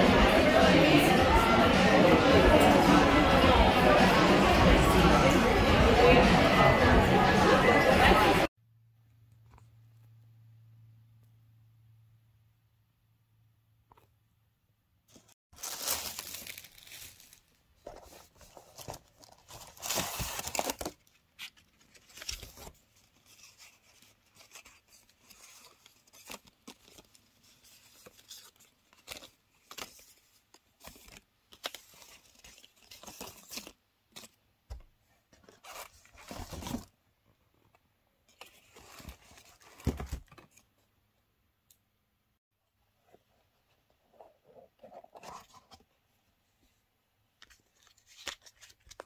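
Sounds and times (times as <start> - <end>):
paper cards and box handled: 15.1 - 40.9, 43.0 - 46.0, 47.4 - 49.0
tissue paper rustling: 15.2 - 34.4.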